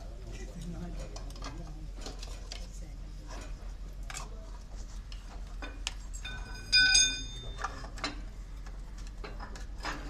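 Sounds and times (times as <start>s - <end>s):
loud ringing metal clang: 6.2s - 7.6s
crowbars clinking against metal: 6.2s - 8.2s.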